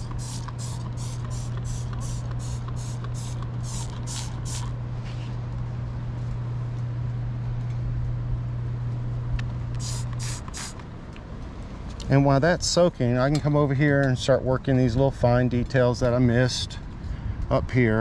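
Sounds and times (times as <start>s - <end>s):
spray bottle squirting: 0.0s - 4.8s, 9.8s - 10.8s
low hum: 0.0s - 18.0s.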